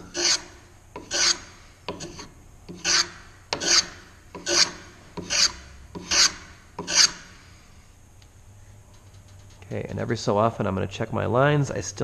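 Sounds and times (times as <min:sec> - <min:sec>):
block plane shaving wood: 0:00.1 - 0:07.2.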